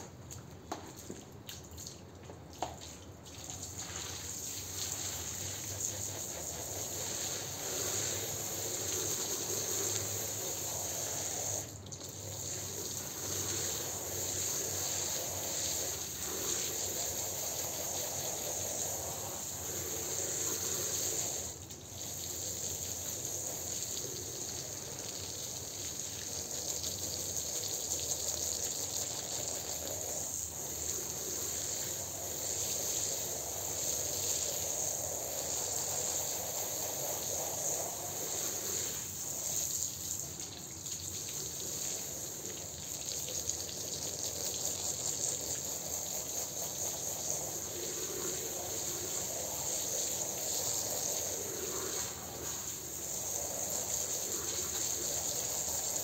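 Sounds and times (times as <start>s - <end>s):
water splashing onto rug: 0.1s - 56.0s.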